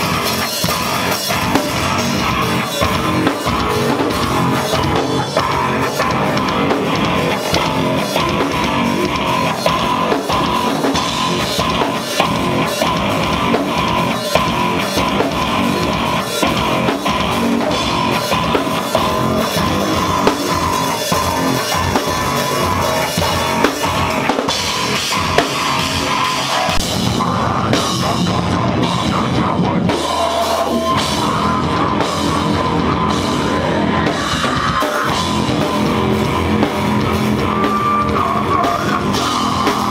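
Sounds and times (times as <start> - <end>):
distorted electric guitar: 0.0 - 39.9
drum kit with crashing cymbals: 0.0 - 39.9
screamed vocals: 25.2 - 39.9.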